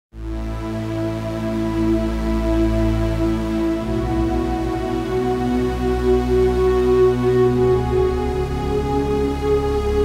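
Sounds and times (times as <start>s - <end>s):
ambient music of held notes: 0.2s - 10.0s.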